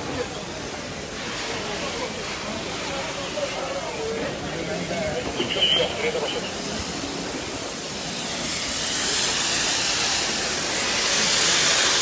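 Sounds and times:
loud steady hiss: 0.0s - 12.0s.

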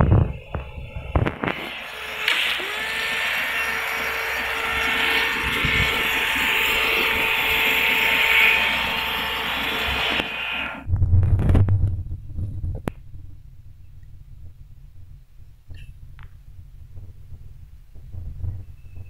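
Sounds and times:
low rumble: 0.0s - 1.7s, 10.8s - 19.0s
irrigation sprinkler water spray hissing: 1.6s - 3.6s.

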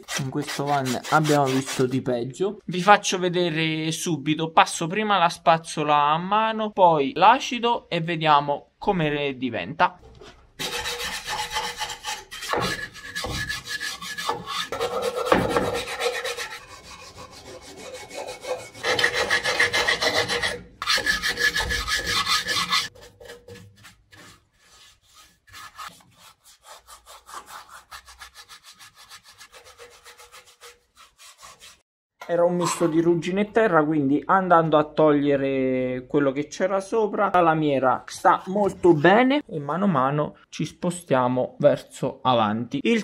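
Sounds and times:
wire brush scrubbing metal: 0.0s - 2.0s, 10.2s - 31.8s.

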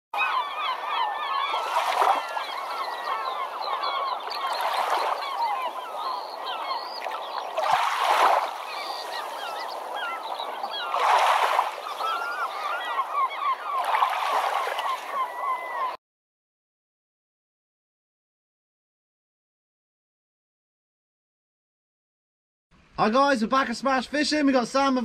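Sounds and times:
birds chattering: 0.2s - 16.0s.

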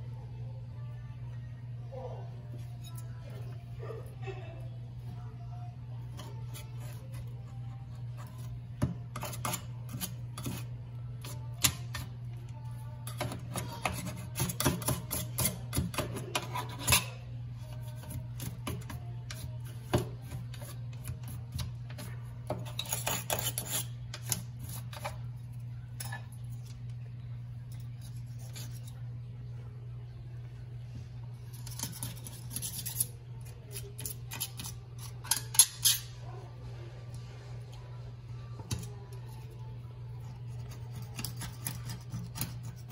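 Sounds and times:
steady low hum: 0.0s - 42.9s
hand tool scraping caulk: 22.5s - 25.1s.

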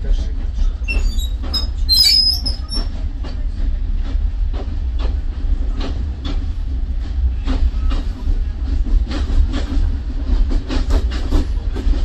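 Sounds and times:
train rumble: 0.0s - 12.0s
high squeal: 0.9s - 2.9s.

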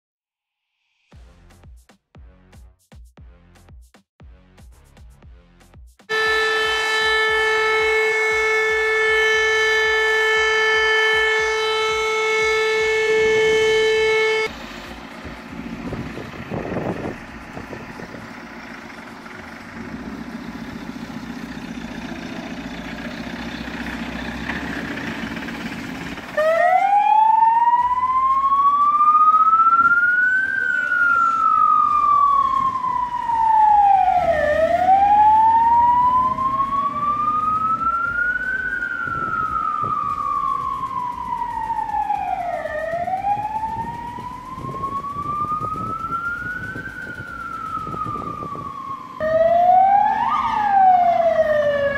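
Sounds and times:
siren wailing: 6.1s - 14.6s, 26.2s - 51.9s
fire engine running: 6.1s - 51.9s.

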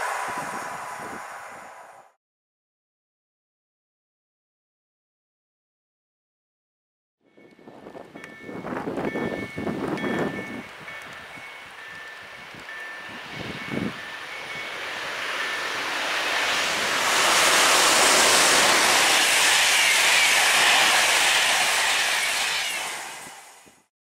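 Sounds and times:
train passing at speed: 0.0s - 2.2s, 7.3s - 23.9s.

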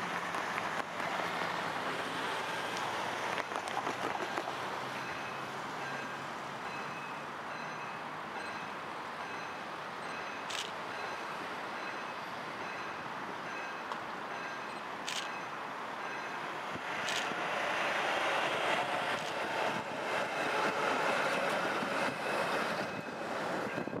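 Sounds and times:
trams running on rails: 0.0s - 24.0s
sharp clicks: 17.0s - 17.3s.

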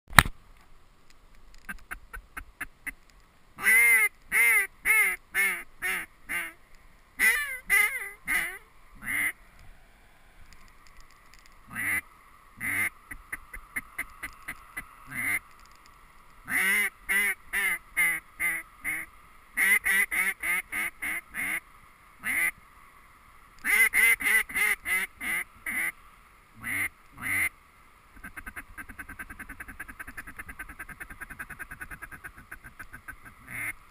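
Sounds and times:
duck call quacking: 3.6s - 6.6s, 7.2s - 9.4s, 11.7s - 12.0s, 12.6s - 15.4s, 16.5s - 21.6s, 22.2s - 22.6s, 23.6s - 26.0s, 26.6s - 27.5s, 28.2s - 33.8s.

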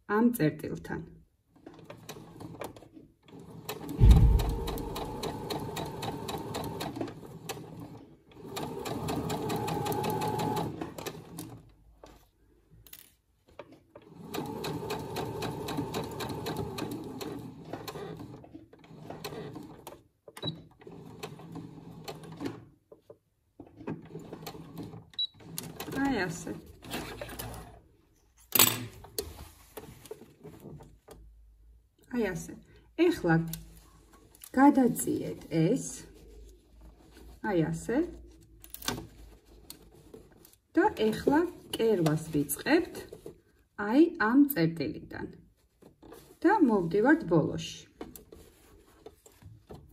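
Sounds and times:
sewing machine stitching: 1.5s - 11.6s, 13.9s - 23.0s, 23.6s - 27.8s
loud thump: 4.0s - 5.2s.

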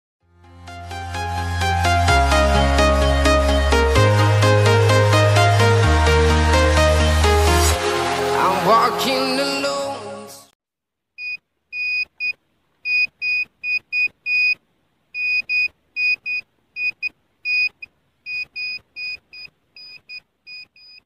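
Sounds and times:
music track: 0.3s - 10.5s
metal detector beeping: 11.2s - 14.6s, 15.2s - 21.0s.

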